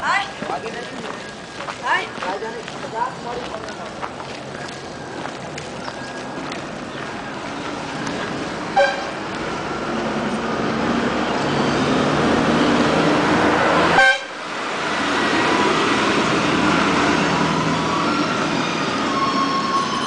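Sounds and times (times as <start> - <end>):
street traffic: 0.0 - 20.0
vehicle horn toot: 8.8 - 9.2, 14.0 - 14.3.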